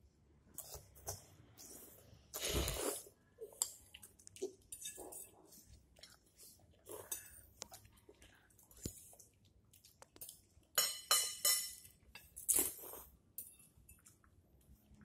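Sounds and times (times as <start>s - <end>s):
slurping and chewing noodles: 0.5s - 10.4s, 12.4s - 13.2s
forks clicking on plates: 10.2s - 12.4s.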